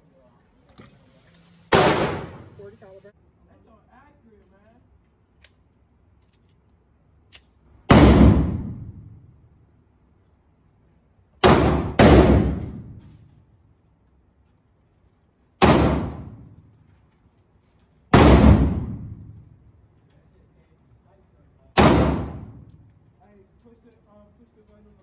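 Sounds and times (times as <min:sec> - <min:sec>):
pistol shots echoing indoors: 0:01.7 - 0:02.6, 0:07.3 - 0:09.4, 0:11.4 - 0:13.4, 0:15.6 - 0:16.8, 0:18.1 - 0:19.8, 0:21.7 - 0:23.0.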